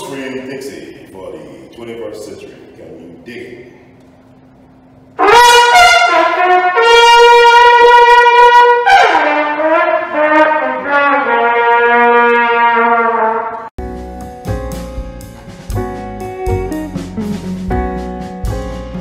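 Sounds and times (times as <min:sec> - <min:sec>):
solo trumpet playing: 0:05.2 - 0:13.7.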